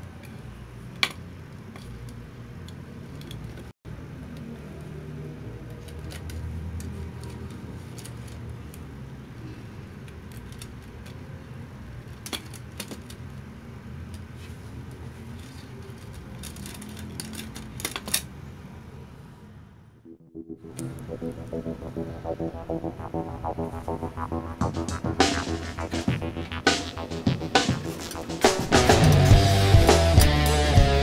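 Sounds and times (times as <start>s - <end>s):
steady low rumble: 20.1s - 28.2s.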